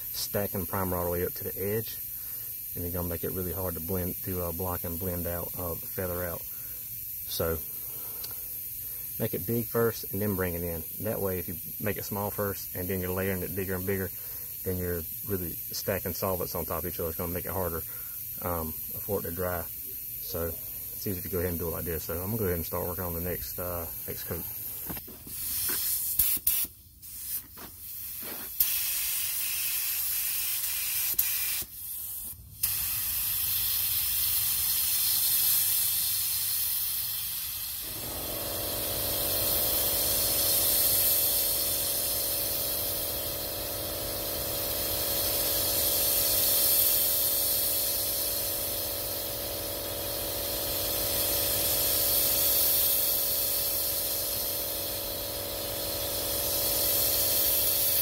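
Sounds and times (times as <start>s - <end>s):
steady low hum: 0.0s - 26.2s, 37.8s - 58.0s
paint spray gun hissing: 0.0s - 58.0s.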